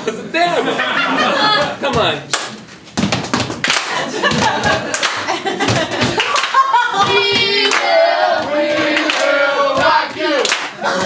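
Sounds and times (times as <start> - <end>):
hands clapping in rhythm: 2.3 - 2.6, 3.5 - 11.0
group of voices singing: 6.7 - 11.0.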